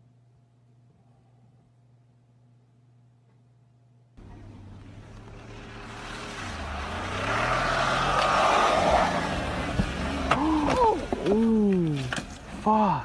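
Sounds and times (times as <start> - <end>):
engine revving hard: 5.3 - 10.4.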